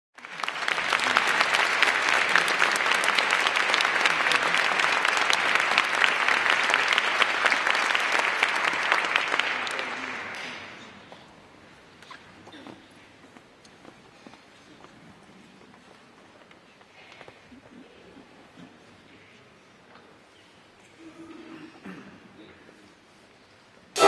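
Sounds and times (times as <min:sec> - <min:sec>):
audience applauding: 0:00.2 - 0:10.9.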